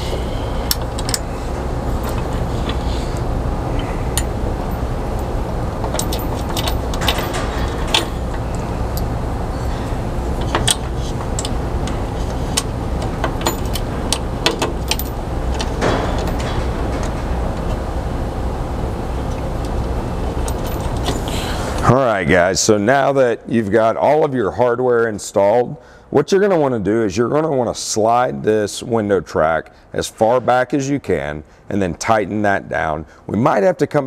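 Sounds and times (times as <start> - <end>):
steady low hum: 0.0 - 34.0
metal hardware clicks and clinks: 4.2 - 8.6, 12.6 - 17.7, 20.4 - 21.3.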